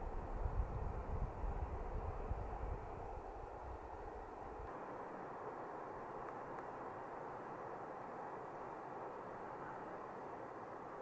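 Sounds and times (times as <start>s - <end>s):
wind buffeting microphone: 0.0s - 4.7s
rushing hiss of outdoor air: 0.0s - 11.0s.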